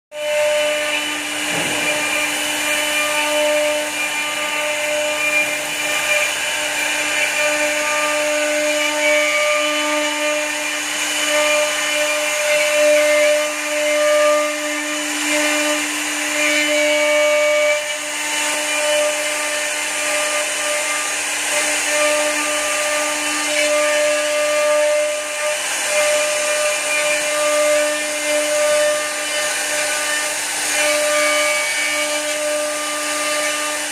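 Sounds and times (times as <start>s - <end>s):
bits cutting wood: 0.2s - 33.9s
cnc router spindles whining: 0.2s - 33.9s.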